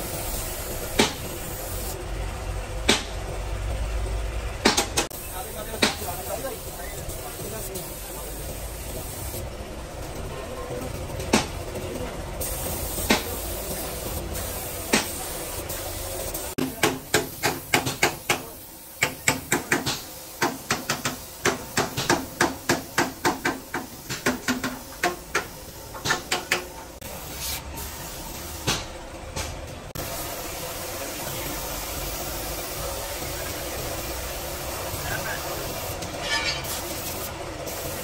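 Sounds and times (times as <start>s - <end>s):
spray gun hissing: 0.0s - 2.0s, 5.2s - 9.4s, 12.4s - 25.8s, 27.0s - 28.6s, 30.0s - 36.0s, 36.6s - 38.0s.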